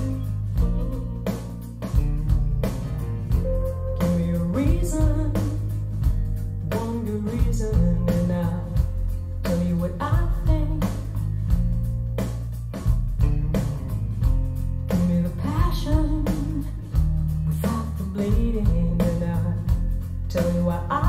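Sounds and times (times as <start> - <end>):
rock song through speakers: 0.0 - 21.0.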